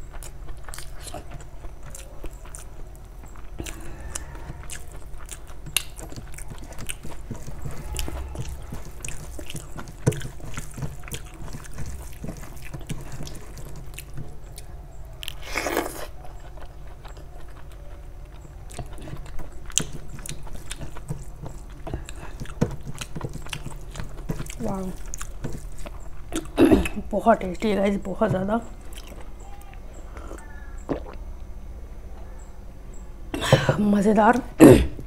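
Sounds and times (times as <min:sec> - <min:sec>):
person chewing with wet mouth sounds: 0:00.0 - 0:31.3.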